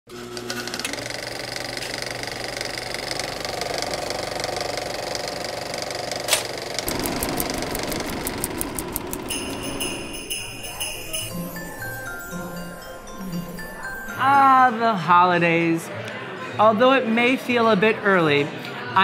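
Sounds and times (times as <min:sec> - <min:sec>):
film projector whirring and rattling: 0:00.1 - 0:10.2.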